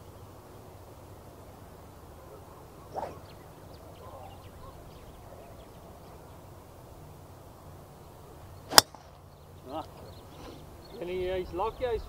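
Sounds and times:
golf club striking ball: 8.7s - 9.2s.

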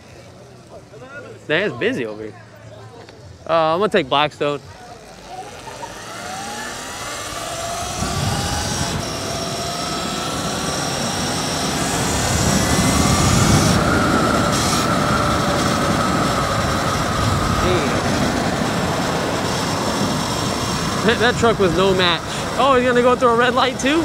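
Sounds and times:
electric bike motor whining: 3.2s - 24.0s
rushing noise: 5.5s - 24.0s.

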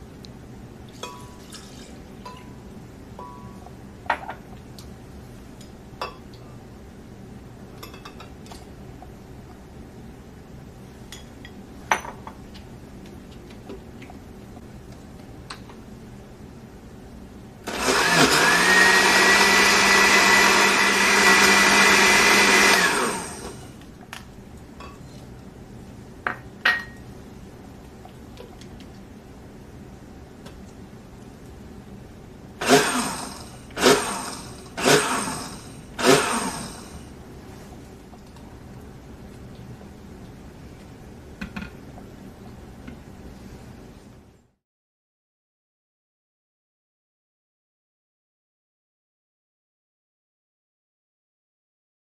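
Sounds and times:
blender motor whining: 17.7s - 23.6s, 32.6s - 37.0s.

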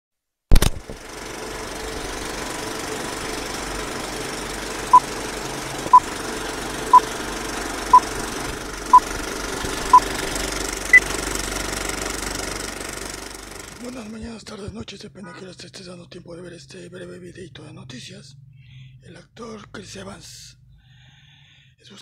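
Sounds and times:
film projector clattering: 0.5s - 14.0s.

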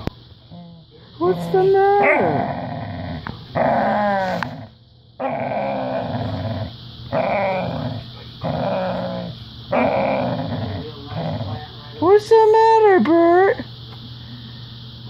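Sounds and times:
dog grumbling: 0.5s - 11.8s.

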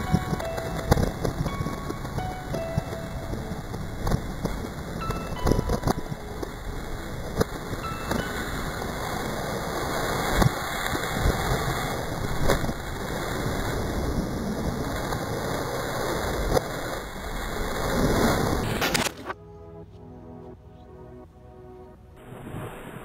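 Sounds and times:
music: 0.0s - 10.5s, 16.2s - 23.0s.

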